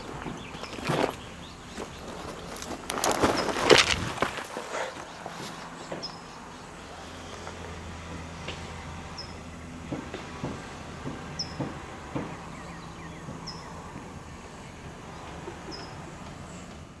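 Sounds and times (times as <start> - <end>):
bird chirping: 0.0 - 3.8, 4.7 - 7.5, 9.1 - 9.9, 11.4 - 16.8
diesel engine humming: 0.0 - 17.0
sharp knocks: 9.9 - 12.5.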